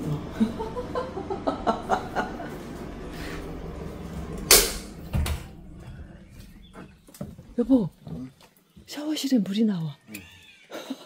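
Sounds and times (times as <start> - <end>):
door thudding shut: 4.5 - 5.6.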